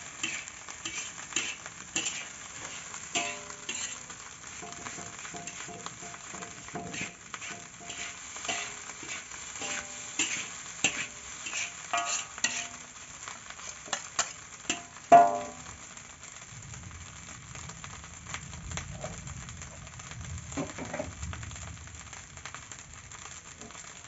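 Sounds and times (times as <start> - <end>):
spatula scraping a metal wok: 0.0 - 15.6, 20.6 - 21.2
light sizzle: 0.0 - 24.0.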